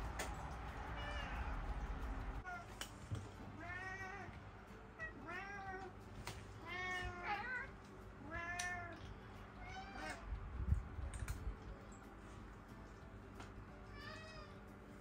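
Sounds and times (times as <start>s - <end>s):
cats meowing: 0.7s - 2.8s, 3.5s - 10.4s, 13.8s - 14.7s.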